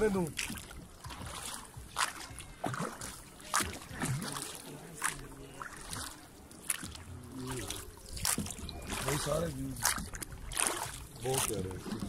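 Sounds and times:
oars splashing in water: 0:00.0 - 0:12.0.

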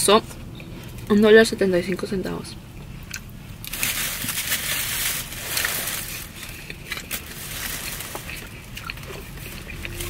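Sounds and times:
chewing with small clicks: 0:02.7 - 0:03.3, 0:08.2 - 0:10.0
crunching of flaky pastry: 0:02.8 - 0:10.0.

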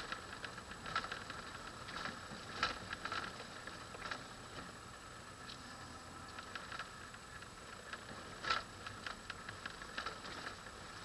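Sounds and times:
rattles and knocks inside vehicle: 0:00.0 - 0:04.8
faint vehicle running noise: 0:00.0 - 0:11.0.

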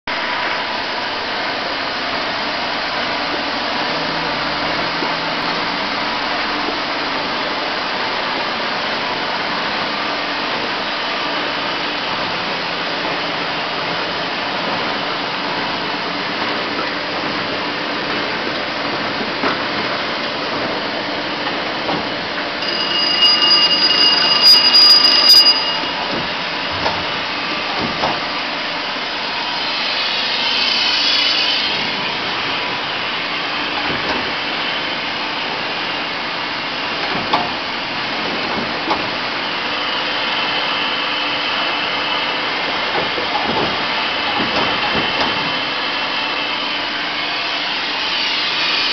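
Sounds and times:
high steady whine: 0:22.6 - 0:26.9
printing press whir and clatter: 0:32.8 - 0:46.8.

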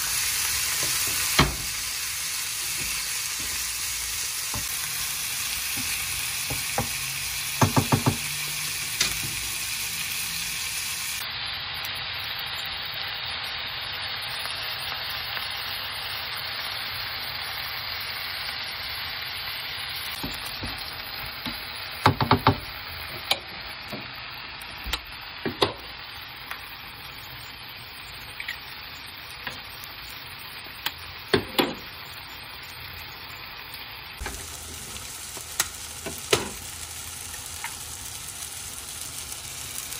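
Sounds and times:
vegetables sizzling in a frying pan: 0:00.0 - 0:39.9
spatula tapping a pan: 0:07.6 - 0:08.3, 0:21.4 - 0:22.7.

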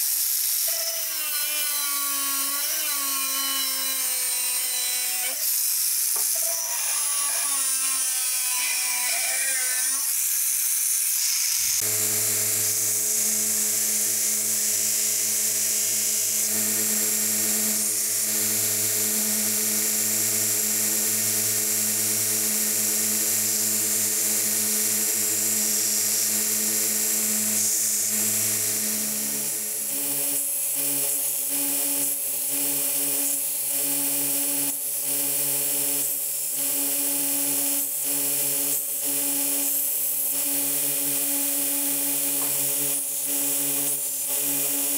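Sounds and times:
belt grinder grinding metal: 0:00.0 - 0:18.6
angle grinder cutting steel: 0:00.0 - 0:18.9.

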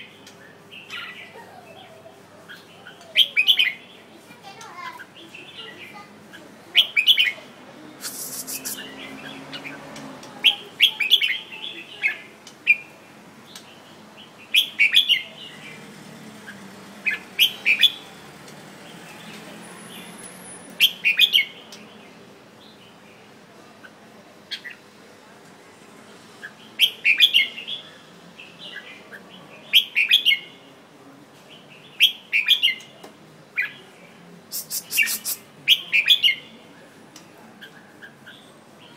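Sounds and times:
bird singing chirpy phrases: 0:00.2 - 0:15.8, 0:33.6 - 0:36.6
bird sharp rasp: 0:08.0 - 0:09.0, 0:34.5 - 0:35.5.

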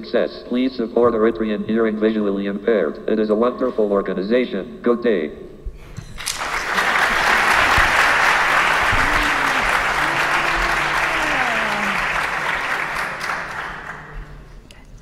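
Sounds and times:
audience applause: 0:06.2 - 0:14.5
faint voice: 0:08.7 - 0:12.2.

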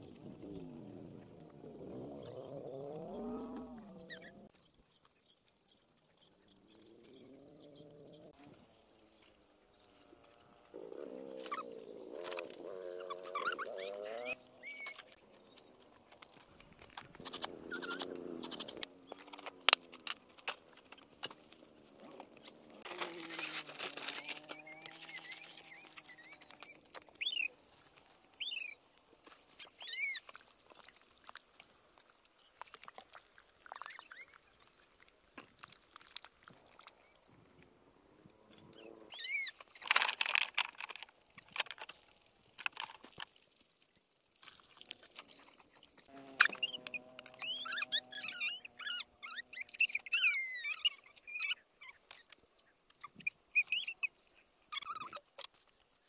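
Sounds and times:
drawn-out animal calls: 0:00.5 - 0:04.5, 0:06.5 - 0:27.5, 0:46.1 - 0:52.2.

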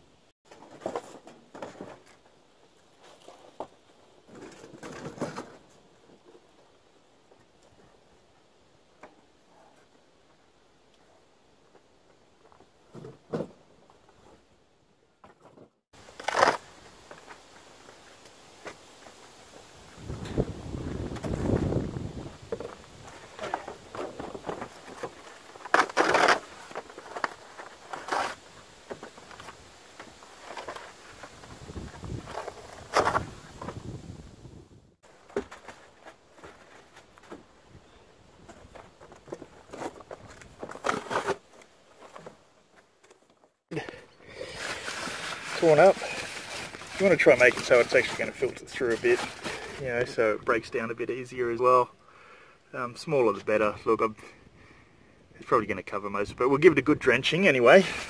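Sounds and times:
cardboard boxes rustling and scraping: 0:00.5 - 0:06.5, 0:20.0 - 0:34.0, 0:35.1 - 0:43.3, 0:44.4 - 0:50.2
cardboard ripping: 0:24.7 - 0:28.5.

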